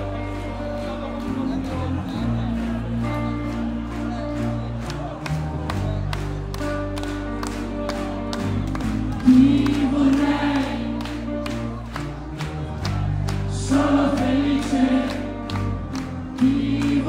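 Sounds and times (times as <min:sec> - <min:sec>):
rock band playing live: 0:00.0 - 0:17.0
crowd singing along: 0:09.1 - 0:11.4, 0:13.4 - 0:17.0.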